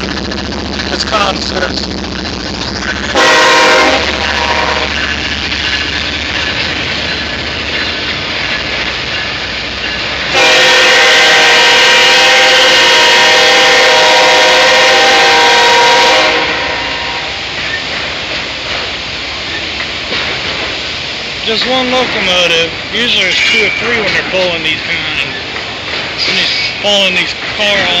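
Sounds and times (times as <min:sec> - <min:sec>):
freight cars rolling on rails: 0:00.0 - 0:28.0
train horn chord: 0:03.1 - 0:05.0, 0:10.3 - 0:17.4.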